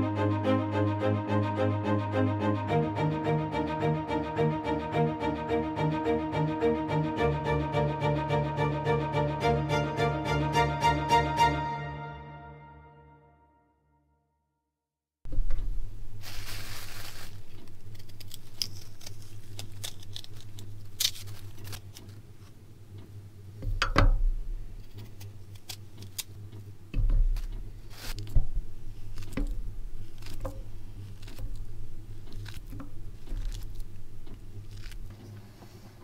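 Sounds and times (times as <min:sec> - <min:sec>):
plastic bag rustling: 0:16.1 - 0:22.2, 0:27.3 - 0:35.1
steady low hum: 0:17.3 - 0:36.0
dull thumps: 0:23.6 - 0:24.7, 0:26.9 - 0:35.2.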